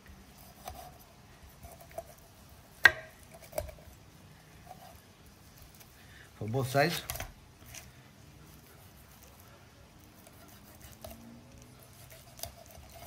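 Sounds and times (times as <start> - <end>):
knife slicing fish skin: 0.4 - 1.0, 10.1 - 11.2, 11.8 - 13.0.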